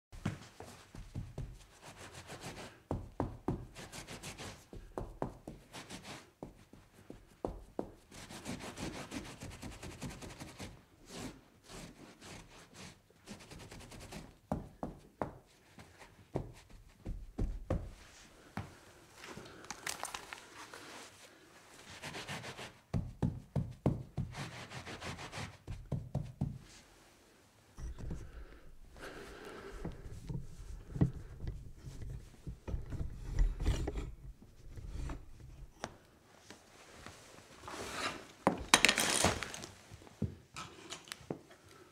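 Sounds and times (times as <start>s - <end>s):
rubbing and wiping: 0.3s - 14.4s, 20.5s - 23.0s, 24.1s - 27.2s, 27.8s - 33.7s
sharp knocks and scrapes: 27.8s - 36.0s.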